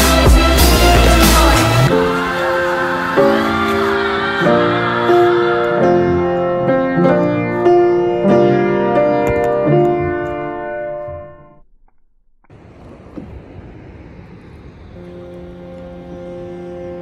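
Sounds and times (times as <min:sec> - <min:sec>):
instrumental background music: 0:00.0 - 0:11.6.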